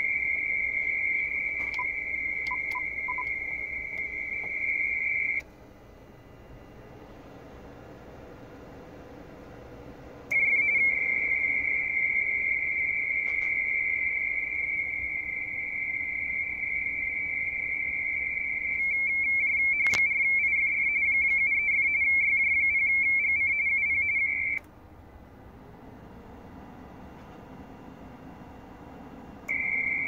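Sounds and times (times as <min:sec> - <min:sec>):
high-pitched warbling data tone: 0:00.0 - 0:05.4, 0:10.3 - 0:24.6, 0:29.5 - 0:30.0.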